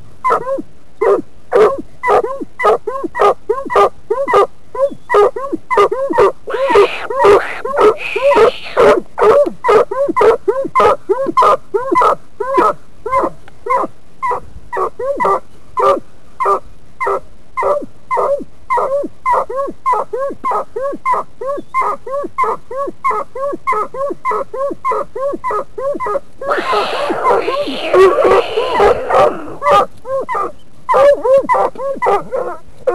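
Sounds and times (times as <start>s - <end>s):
dog barking rapidly: 0.3s - 4.5s, 5.1s - 21.2s, 26.5s - 32.9s.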